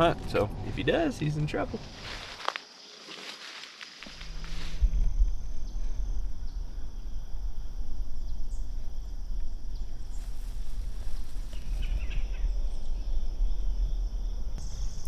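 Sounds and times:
crickets chirping: 0.0s - 15.0s
rustle: 1.8s - 6.0s, 8.6s - 12.9s
loud low rumble: 4.2s - 15.0s.

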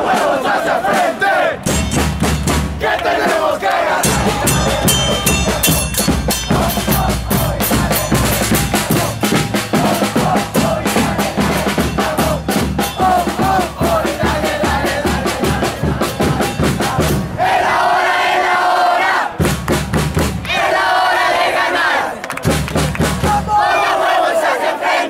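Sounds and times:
fast drum beat: 0.0s - 17.4s, 19.4s - 20.4s, 22.4s - 23.6s
voices singing: 0.0s - 19.4s, 20.4s - 22.6s, 23.2s - 25.0s.

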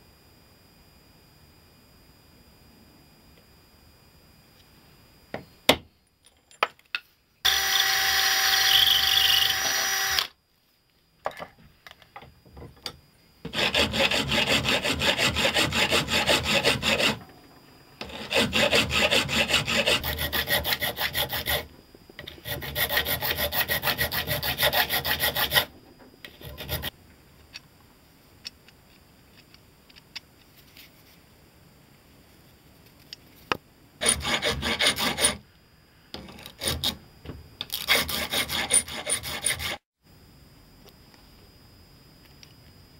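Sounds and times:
file rasping on metal: 13.5s - 17.3s, 18.0s - 26.9s, 34.0s - 35.4s, 36.4s - 37.0s, 37.8s - 39.8s.

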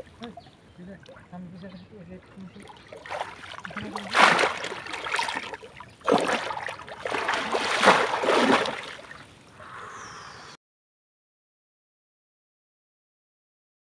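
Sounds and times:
water splashing and sloshing: 0.0s - 9.5s.

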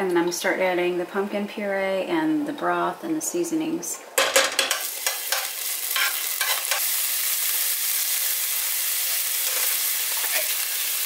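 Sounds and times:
garlic sizzling in oil: 4.7s - 11.0s.

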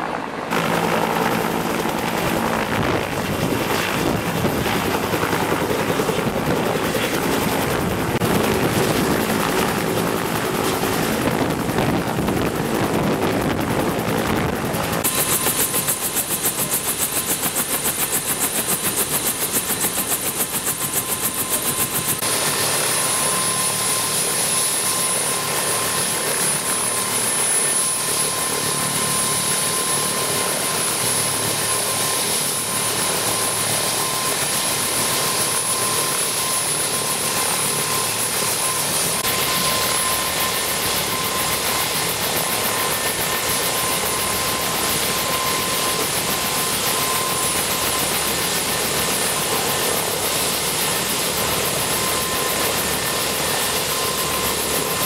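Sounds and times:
helicopter rotor and turbine whine: 0.0s - 55.0s.

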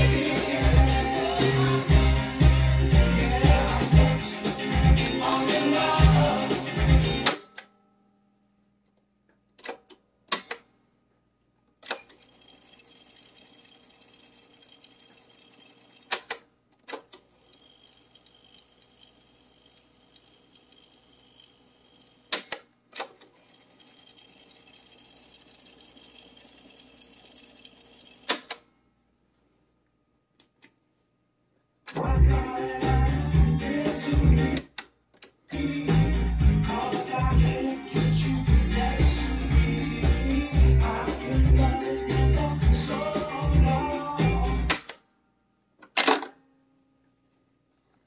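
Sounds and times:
tape winding whir: 11.8s - 28.6s.

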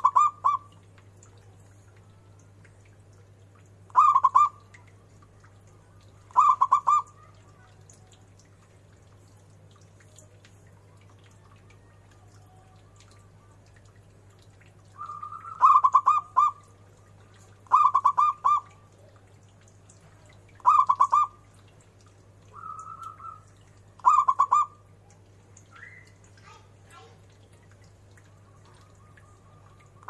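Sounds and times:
dove cooing song: 0.0s - 0.8s, 3.9s - 4.7s, 6.0s - 7.9s, 15.0s - 16.8s, 17.6s - 19.2s, 20.6s - 21.5s, 22.5s - 24.9s, 28.3s - 30.0s.

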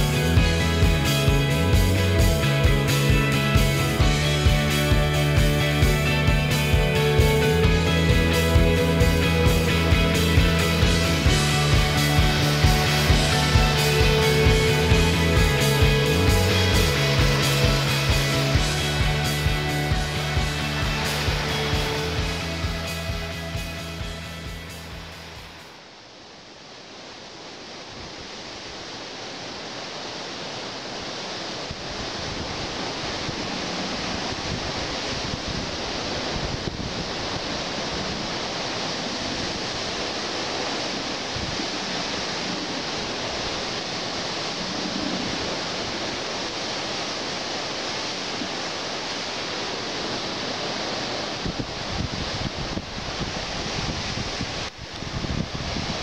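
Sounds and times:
sea surf rushing: 0.0s - 56.0s
wind: 0.0s - 56.0s.

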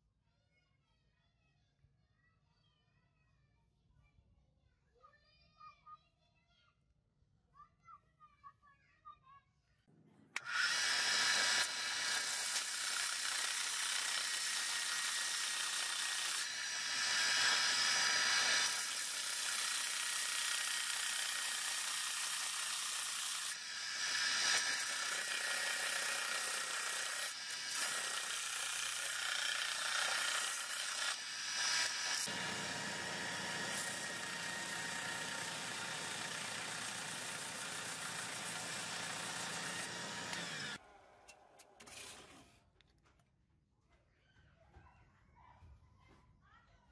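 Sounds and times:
belt sander grinding: 10.4s - 40.8s.

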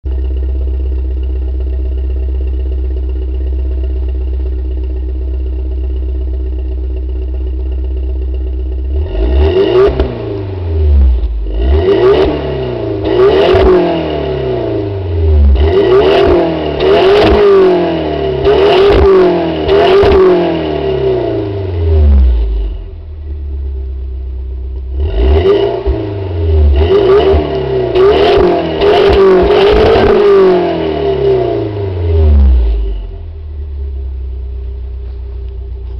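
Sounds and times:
car engine idling and revving: 0.0s - 35.9s
exhaust cracks: 0.1s - 14.1s.

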